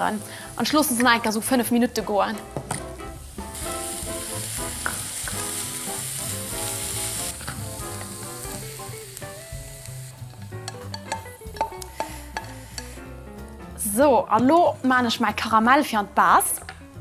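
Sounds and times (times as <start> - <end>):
food sizzling in a frying pan: 0.0 - 13.2.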